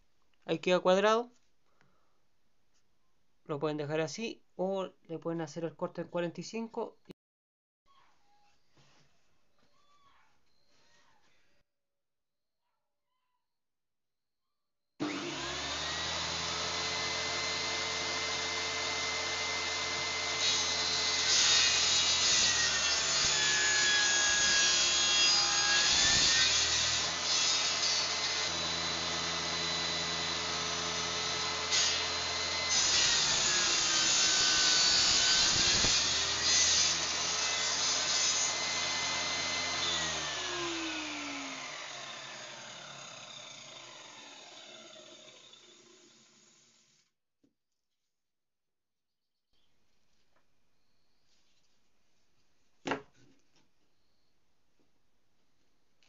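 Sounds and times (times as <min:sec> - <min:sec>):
table saw cutting wood: 0:15.0 - 0:47.0.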